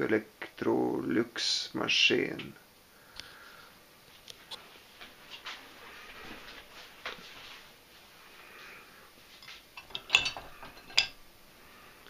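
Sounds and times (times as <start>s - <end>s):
dishes clinking and clattering: 9.4s - 11.2s.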